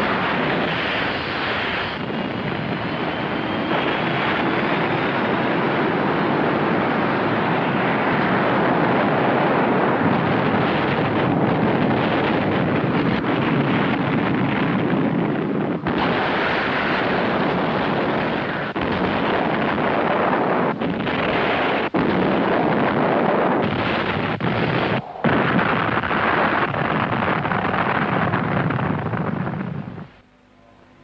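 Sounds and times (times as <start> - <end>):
rocket blast rushing noise: 10.0 - 29.3
faint rising whine: 23.9 - 27.4.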